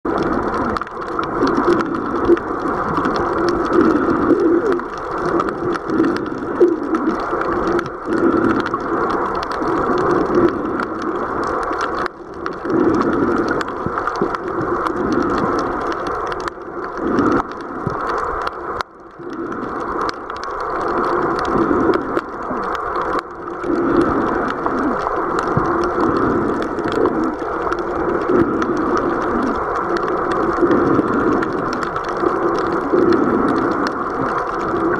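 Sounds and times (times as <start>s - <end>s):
clicks and crackles: 0.0s - 34.9s
underwater water rushing: 0.0s - 34.9s.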